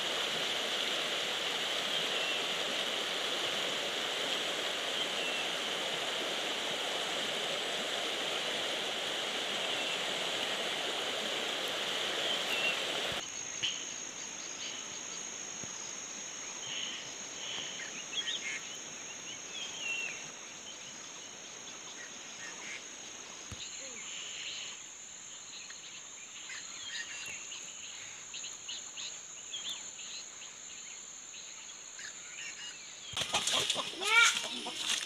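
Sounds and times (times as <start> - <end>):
river rushing over rocks: 0.0 - 13.2
short insect chirps: 12.2 - 31.4.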